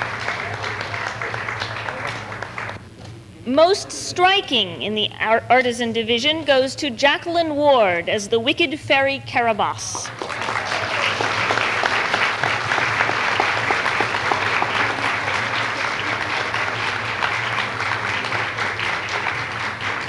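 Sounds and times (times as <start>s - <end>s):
audience applauding: 0.0s - 2.8s, 10.0s - 20.0s.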